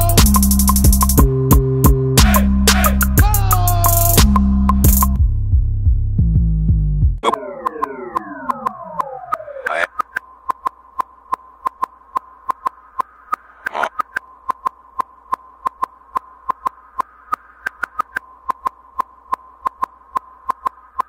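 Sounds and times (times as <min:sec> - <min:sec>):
steady high electronic tone: 0:07.2 - 0:09.9.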